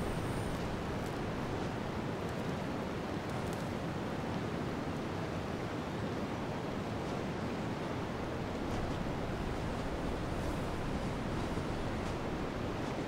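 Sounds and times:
winter wind rushing: 0:00.0 - 0:13.0
faint soft rustles: 0:08.5 - 0:13.0.

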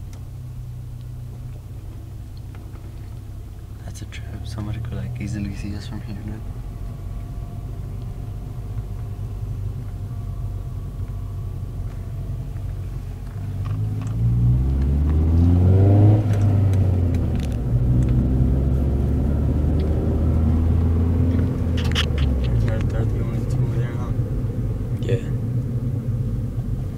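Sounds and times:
car engine: 0:00.0 - 0:26.9
road noise: 0:00.0 - 0:26.9.

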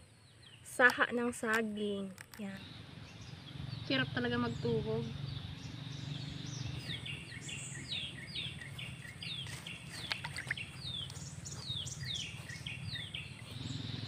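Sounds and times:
steady low hum: 0:02.5 - 0:14.0
bird calling with high downward notes: 0:02.6 - 0:14.0
light clicks: 0:09.4 - 0:11.3.

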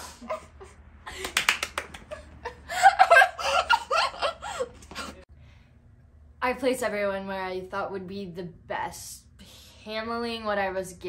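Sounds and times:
girl laughing: 0:00.0 - 0:05.2.

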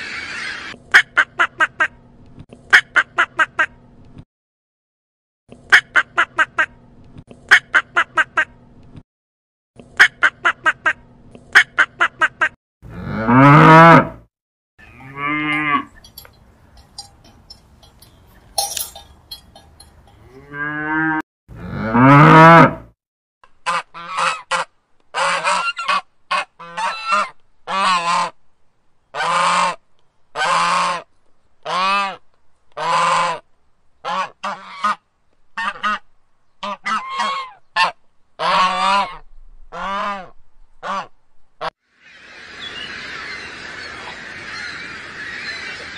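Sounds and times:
geese and ducks honking: 0:00.0 - 0:01.9, 0:23.6 - 0:28.3, 0:32.8 - 0:33.4, 0:34.0 - 0:35.0, 0:36.6 - 0:41.1, 0:42.3 - 0:45.9.

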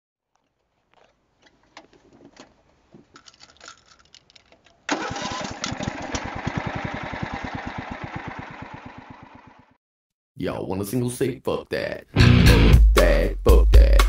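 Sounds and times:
faint clicks and rattles: 0:00.3 - 0:04.9
riding mower engine running: 0:04.9 - 0:09.8.

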